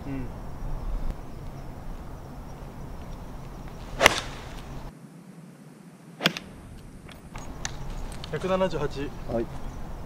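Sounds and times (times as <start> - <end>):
golf club striking ball: 3.9 - 4.9.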